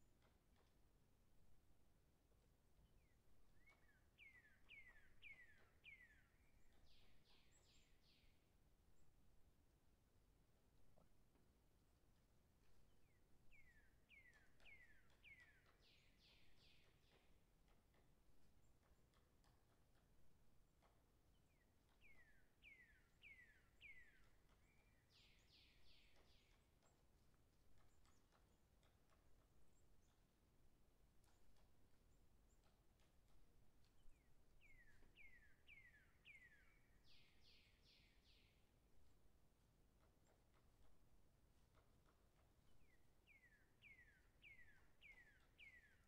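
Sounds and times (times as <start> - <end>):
faint bird chirps: 3.0 - 8.4, 13.0 - 17.4, 21.5 - 27.1, 33.9 - 38.8, 41.7 - 46.0.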